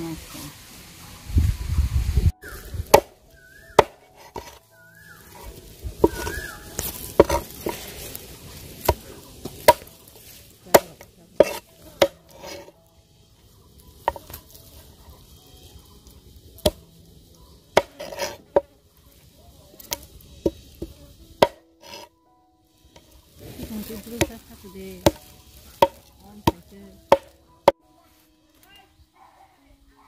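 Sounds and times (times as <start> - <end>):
cleaver chopping fish on board: 3.7 - 4.6, 5.3 - 7.8, 10.7 - 12.7, 19.9 - 22.1, 25.0 - 27.3.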